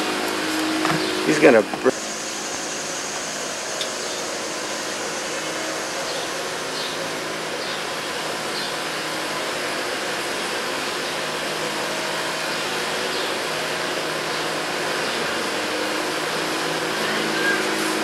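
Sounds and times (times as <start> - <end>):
low motor hum: 0.0 - 7.6
steady hiss: 0.0 - 18.0.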